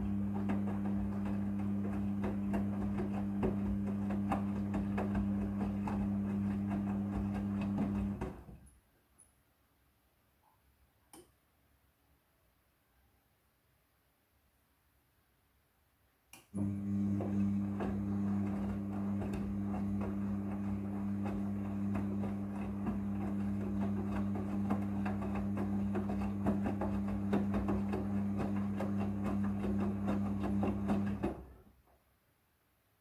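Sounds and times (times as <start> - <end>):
washing machine motor humming: 0.0 - 8.6, 16.6 - 31.6.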